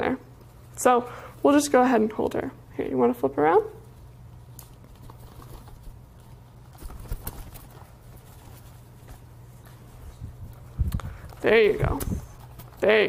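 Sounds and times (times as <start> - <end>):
steady low hum: 0.0 - 13.0
bird wings fluttering: 4.8 - 9.2.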